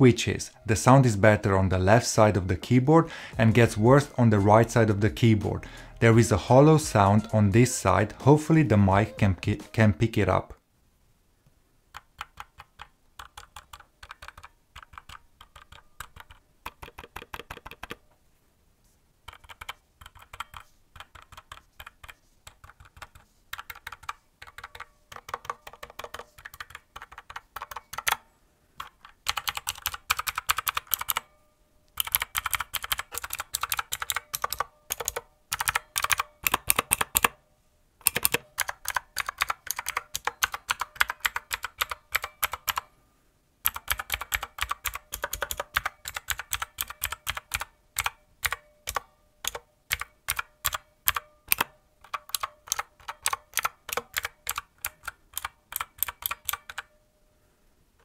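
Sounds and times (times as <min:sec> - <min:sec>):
clicky keyboard typing: 0:11.9 - 0:18.0, 0:19.2 - 0:28.2, 0:28.8 - 0:31.3, 0:32.0 - 0:37.4, 0:38.0 - 0:42.9, 0:43.6 - 0:57.0.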